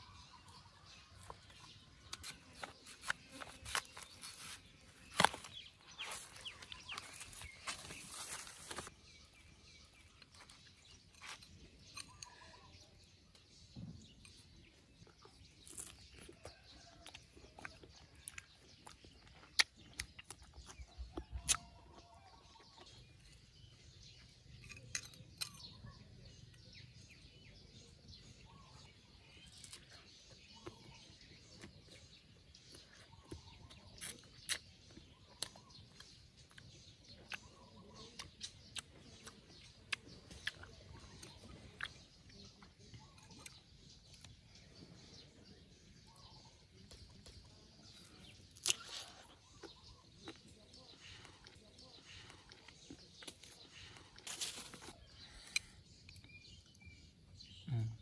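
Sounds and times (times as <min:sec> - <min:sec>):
faint bird chirps: 0:00.0 - 0:58.0
knife cutting and scraping mango: 0:01.5 - 0:09.0, 0:10.4 - 0:12.5.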